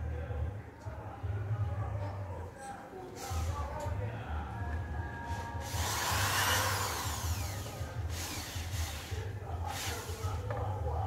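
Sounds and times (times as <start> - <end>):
cordless drill whirring: 5.6 - 10.2.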